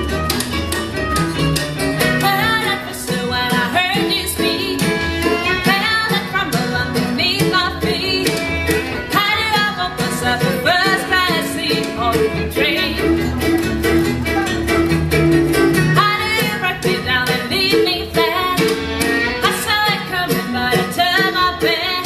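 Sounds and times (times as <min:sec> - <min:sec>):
bluegrass band playing: 0:00.0 - 0:22.0
woman singing: 0:02.2 - 0:13.3, 0:16.0 - 0:22.0.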